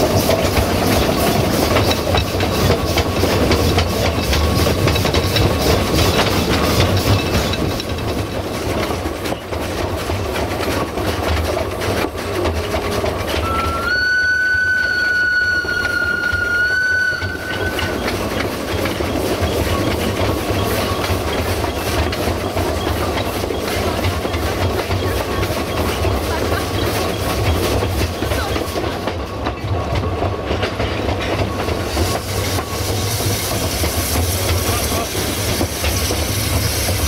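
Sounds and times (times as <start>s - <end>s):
steam train running rumble: 0.0s - 37.0s
wheels clicking over rail joints: 0.0s - 37.0s
steam locomotive whistle: 13.4s - 18.2s.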